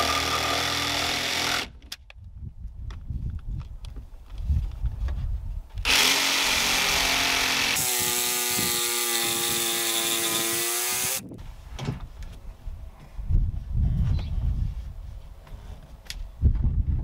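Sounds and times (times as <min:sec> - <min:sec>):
jigsaw cutting wood: 0:00.0 - 0:01.8, 0:05.8 - 0:11.2.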